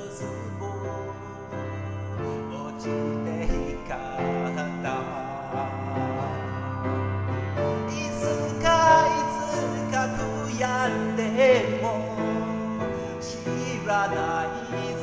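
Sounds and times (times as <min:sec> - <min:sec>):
man singing a ballad: 0:00.0 - 0:15.0
piano accompaniment: 0:00.0 - 0:15.0.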